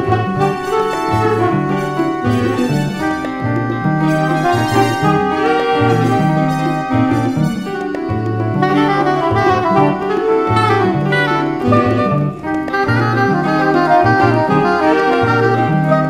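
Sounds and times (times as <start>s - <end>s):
latin jazz band playing: 0.0s - 16.0s
saxophone melody: 0.0s - 16.0s
walking acoustic bass line: 0.0s - 16.0s.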